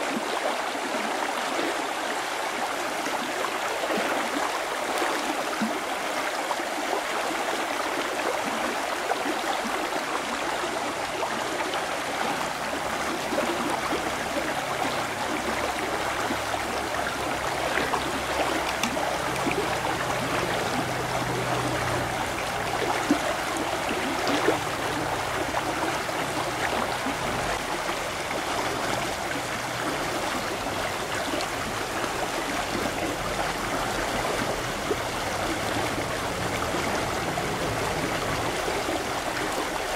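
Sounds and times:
river rushing over rocks: 0.0 - 39.9
faint clicks: 18.0 - 19.6.

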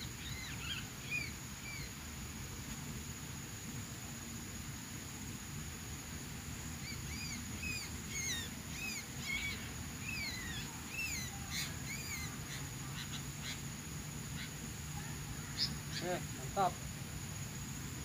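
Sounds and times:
small songbird whistling: 0.0 - 1.9, 6.8 - 13.7, 15.5 - 16.2
high-pitched insect drone: 0.0 - 18.0.

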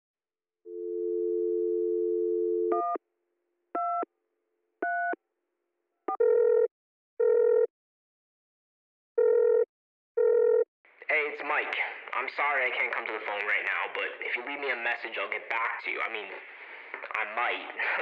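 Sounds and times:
telephone ringing tone: 9.2 - 10.6.

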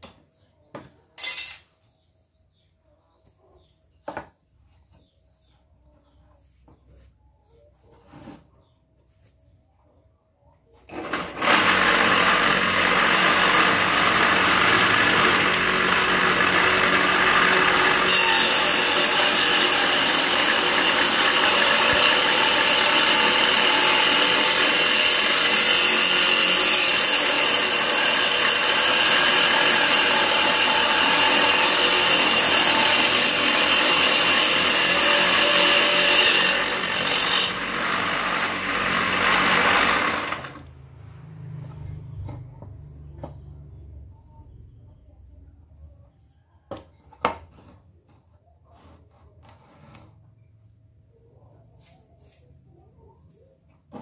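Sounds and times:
table saw motor running: 10.9 - 40.8
saw blade cutting wood: 11.0 - 40.6.

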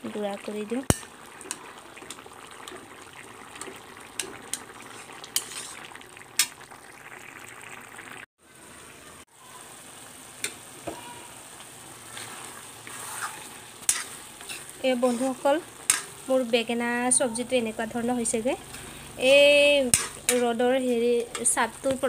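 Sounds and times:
curry sizzling in a pan: 0.0 - 22.0
metal spoon scraping a pan: 3.6 - 6.5, 12.1 - 16.2, 18.6 - 21.9.

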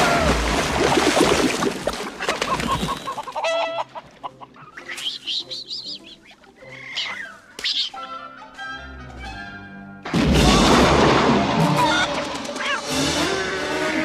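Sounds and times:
music: 3.3 - 14.0
raccoons chittering and squealing: 4.2 - 8.1
crash: 10.1 - 12.9.

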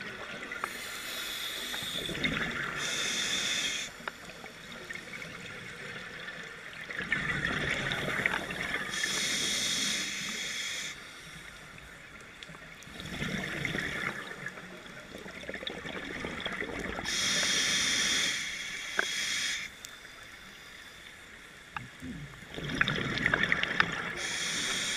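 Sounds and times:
regulator inhalation hiss: 0.6 - 4.7, 8.8 - 11.6, 17.0 - 21.0, 24.2 - 24.9
gurgling exhaled bubbles: 2.0 - 3.0, 4.9 - 9.0, 12.9 - 17.1, 21.8 - 24.3.

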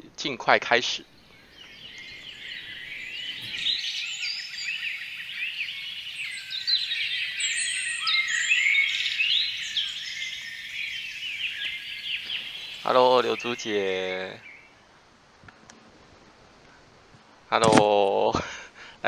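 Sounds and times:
many small birds chirping: 0.2 - 14.9.

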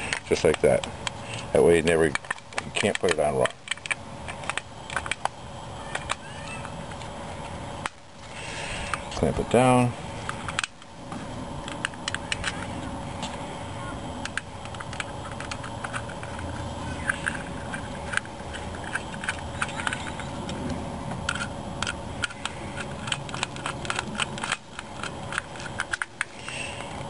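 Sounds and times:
faint steady hum: 0.0 - 27.0
screwdriver clicks and scrapes: 14.2 - 27.0.

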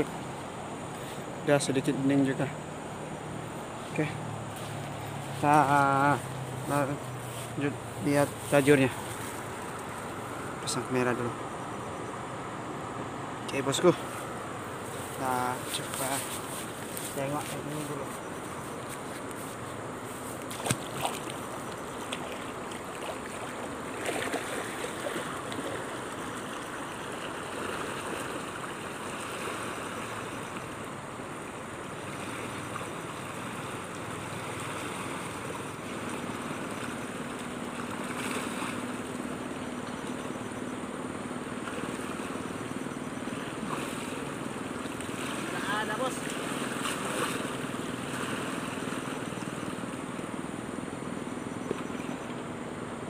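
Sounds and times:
river rushing: 0.0 - 53.0
splashes of stepping into water: 20.3 - 29.8.

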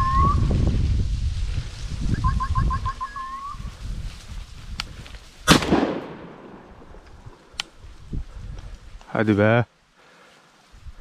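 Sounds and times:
shotgun shot with echo: 5.5 - 6.6.

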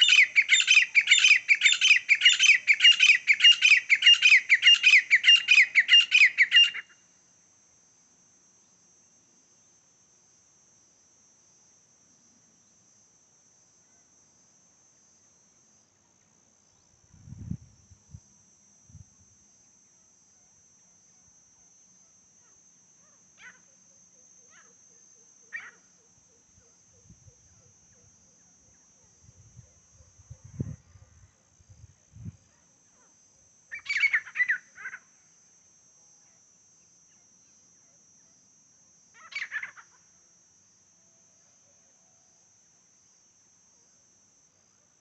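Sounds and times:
francolin harsh calls: 0.0 - 7.0, 22.4 - 23.7, 24.4 - 24.8, 25.4 - 29.0, 33.7 - 35.1, 39.1 - 40.0
crickets chirring: 0.0 - 45.0.

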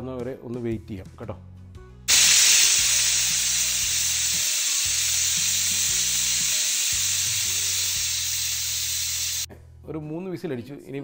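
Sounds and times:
pressure cooker steam hissing: 2.1 - 9.5.

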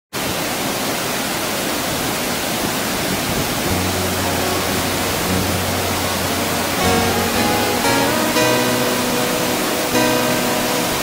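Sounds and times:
waterfall and rapids rushing: 0.2 - 11.0
low held music note: 3.7 - 11.0.

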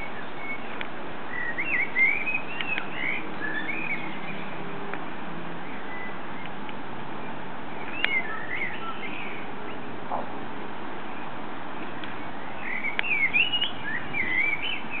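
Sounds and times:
blackbird singing: 0.0 - 4.7, 5.5 - 6.6, 7.8 - 10.3, 12.0 - 15.0
steady background hiss: 0.0 - 15.0.

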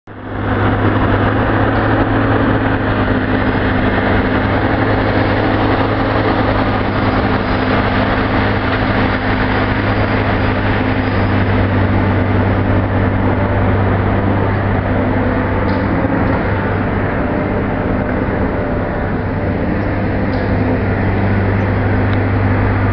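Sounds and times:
engine droning steadily: 0.0 - 22.9.

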